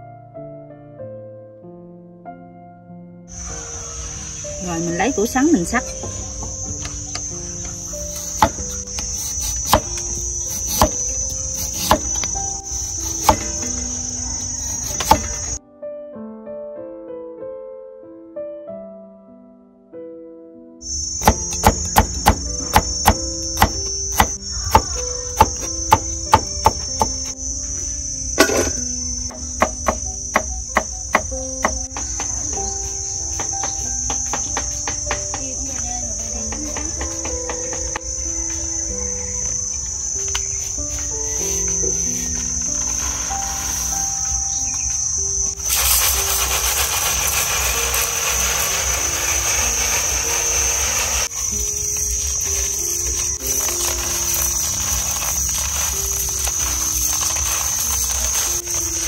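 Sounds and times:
crickets chirring: 3.3s - 15.6s, 20.8s - 59.0s
knife chopping on cutting board: 10.6s - 11.0s, 11.6s - 12.2s
high-pitched whine: 37.2s - 59.0s.

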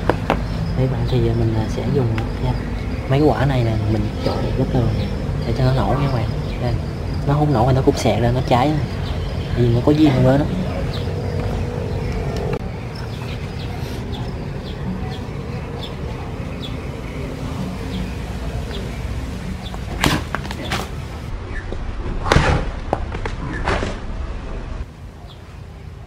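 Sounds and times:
firecracker pops: 20.0s - 20.8s, 22.2s - 24.0s.

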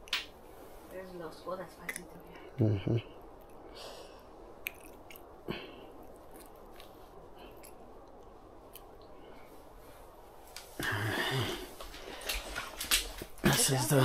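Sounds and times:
low background hiss: 0.0s - 14.0s
soft clicks and rustles: 6.0s - 10.8s, 11.6s - 13.4s.

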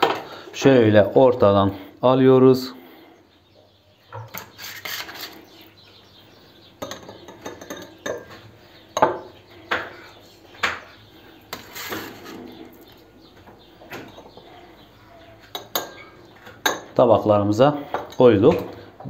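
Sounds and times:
metal spatula scraping metal tray: 4.4s - 5.5s, 11.5s - 12.6s.

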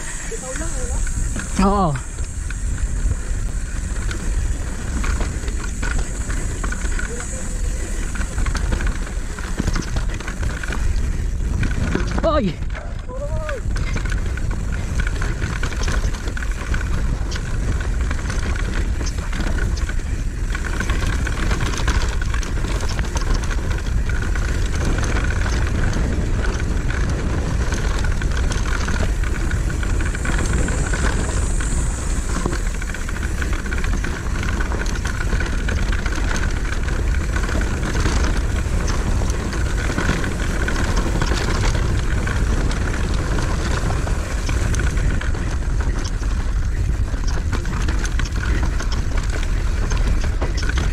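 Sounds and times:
bike rattling and knocking: 0.0s - 50.9s
tyres on dirt: 0.0s - 50.9s
wind rumble on microphone: 0.0s - 50.9s.

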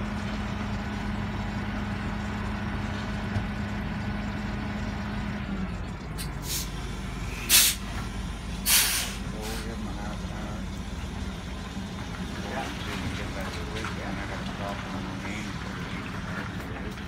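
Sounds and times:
truck engine idling: 0.0s - 17.0s
air brake hisses: 6.4s - 6.7s, 7.3s - 7.8s, 8.6s - 9.6s.

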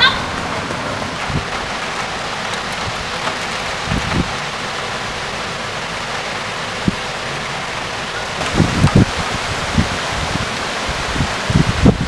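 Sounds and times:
heavy rain hissing: 0.0s - 12.0s
low thumps: 8.4s - 10.5s.

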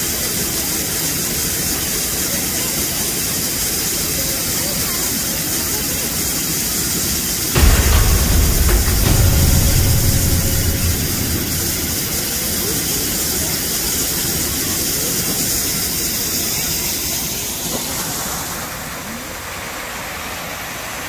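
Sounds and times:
low rumble: 7.6s - 13.0s.

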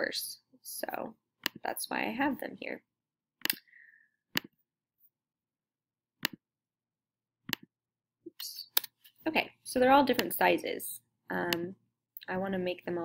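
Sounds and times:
computer mouse clicks: 1.4s - 1.6s, 3.4s - 3.7s, 4.3s - 4.6s, 6.2s - 6.4s, 7.5s - 7.7s, 10.1s - 10.4s.

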